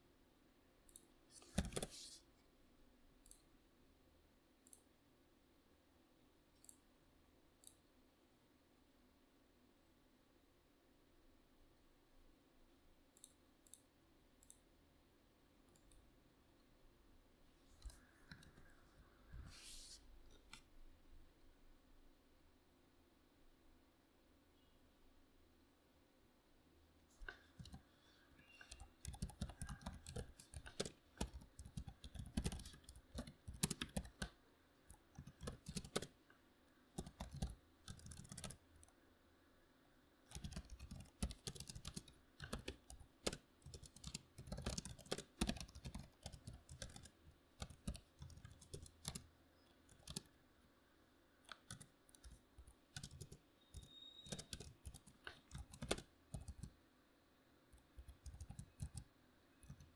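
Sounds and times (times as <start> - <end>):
typing on computer keyboard: 0.9 - 2.0, 27.3 - 36.2, 37.0 - 39.0, 40.3 - 49.3, 49.9 - 50.3, 51.5 - 56.7, 57.8 - 59.9.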